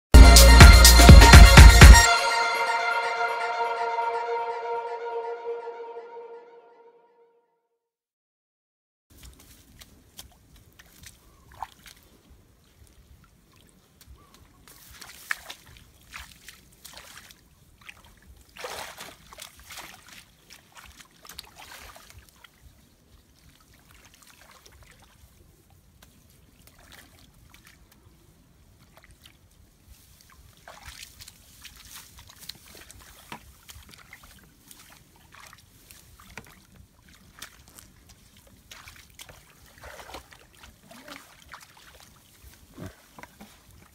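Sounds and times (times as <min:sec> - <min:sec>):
hands digging through mud and water: 0:09.1 - 0:12.2, 0:12.9 - 0:22.6, 0:28.8 - 0:43.9
water sloshing and splashing: 0:09.1 - 0:43.9.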